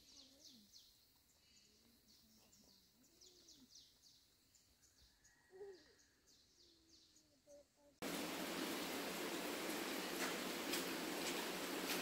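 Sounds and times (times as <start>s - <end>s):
bird chirping: 0.0s - 7.9s.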